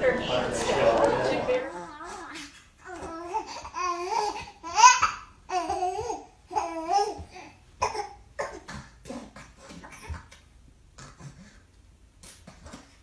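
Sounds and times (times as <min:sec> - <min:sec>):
infant babbling and cooing: 0:01.7 - 0:10.1.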